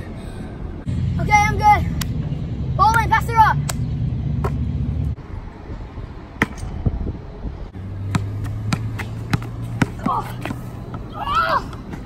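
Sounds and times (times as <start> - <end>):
low traffic hum: 0.0 - 12.0
basketball bouncing on asphalt: 6.4 - 6.7, 7.8 - 11.1.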